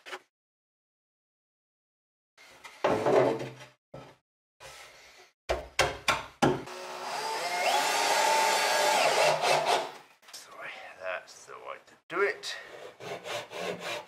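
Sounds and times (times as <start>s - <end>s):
wooden knocks on plywood board: 5.5s - 6.6s.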